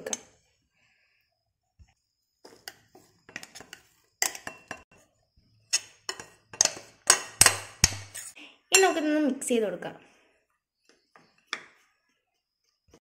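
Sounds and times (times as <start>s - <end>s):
spoon scraping steel jar: 2.5s - 4.8s, 5.7s - 9.0s.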